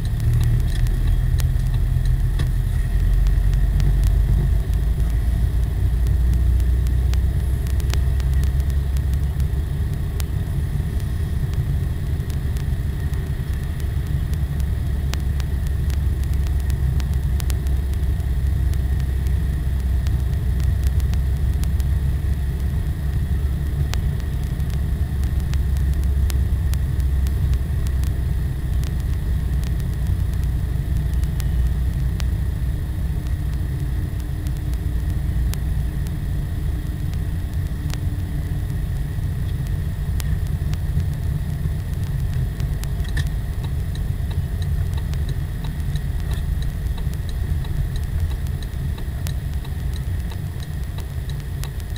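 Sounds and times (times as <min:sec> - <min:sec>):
car engine and tyre road noise: 0:00.0 - 0:51.9.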